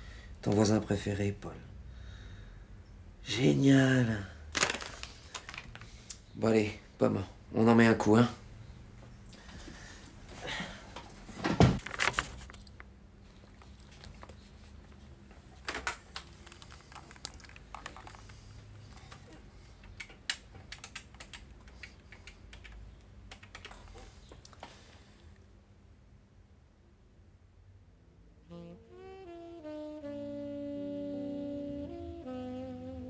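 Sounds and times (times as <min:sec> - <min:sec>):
keyboard typing: 0:15.8 - 0:24.0.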